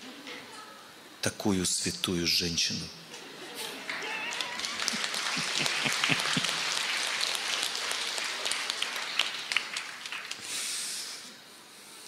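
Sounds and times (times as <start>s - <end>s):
audience applauding: 3.7s - 10.7s.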